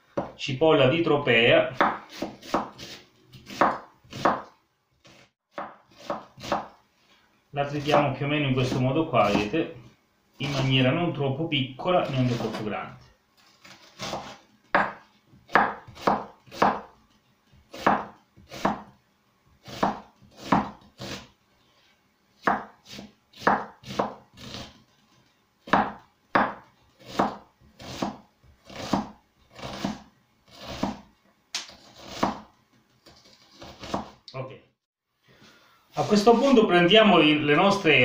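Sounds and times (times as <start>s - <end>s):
knife chopping on wooden board: 1.8s - 4.5s, 5.1s - 6.8s, 8.6s - 9.5s, 13.9s - 16.9s, 17.7s - 19.0s, 19.6s - 21.2s, 22.4s - 24.8s, 25.7s - 32.5s, 33.2s - 34.2s.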